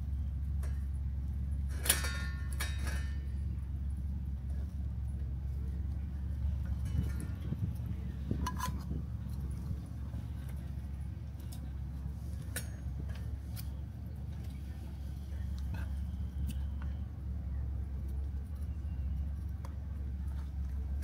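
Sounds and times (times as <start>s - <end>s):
steady low rumble: 0.0s - 21.0s.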